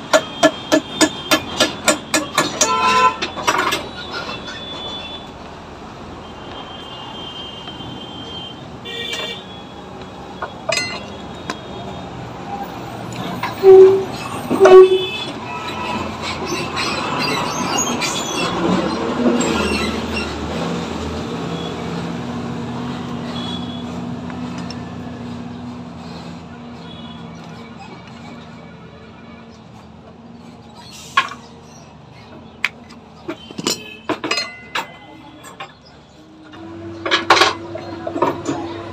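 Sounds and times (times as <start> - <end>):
road traffic noise: 0.0 - 38.9
vehicle horn toots: 0.2 - 5.3, 6.3 - 9.7, 13.5 - 16.1.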